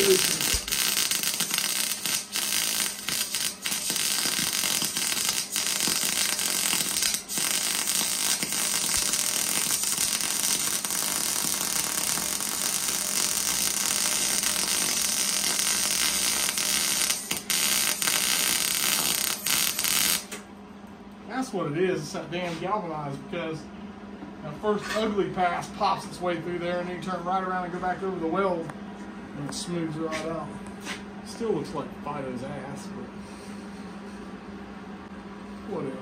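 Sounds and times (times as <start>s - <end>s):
electric arc welding crackle: 0.0s - 20.4s.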